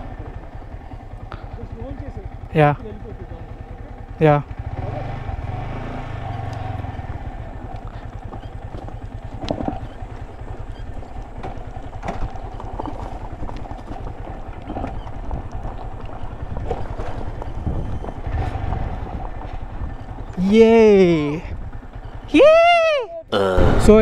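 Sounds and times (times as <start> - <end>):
motorcycle engine running: 0.0 - 24.0
knocks and clatters: 11.2 - 18.1.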